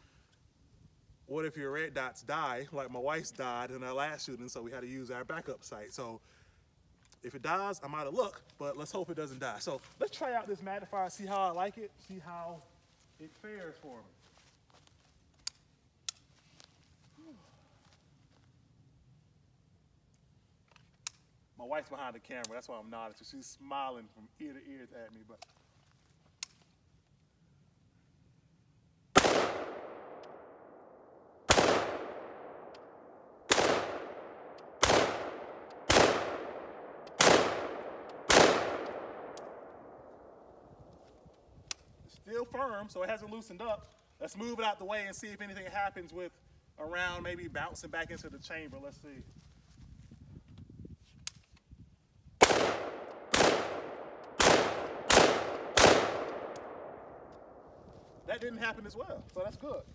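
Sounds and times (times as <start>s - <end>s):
rifle shots with echo: 29.1s - 40.6s, 52.4s - 57.8s.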